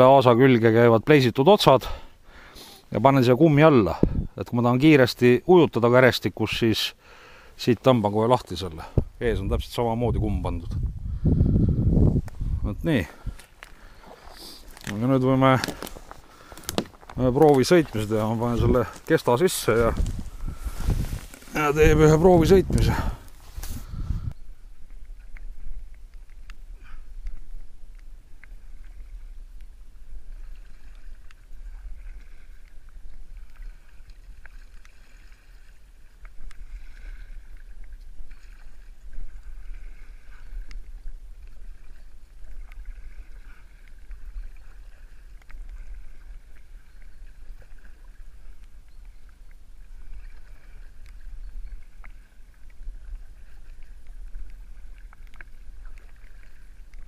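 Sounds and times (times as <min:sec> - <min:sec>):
steady low rumble: 0:09.0 - 0:13.4
paddle strokes through water: 0:10.2 - 0:57.0
water splashes and drips: 0:13.0 - 0:23.8, 0:24.8 - 0:57.0.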